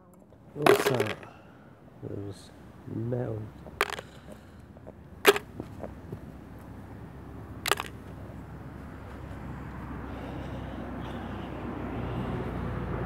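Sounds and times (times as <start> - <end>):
metal objects dropped into plastic bucket: 0.6 - 1.4, 3.8 - 4.2, 7.7 - 8.0.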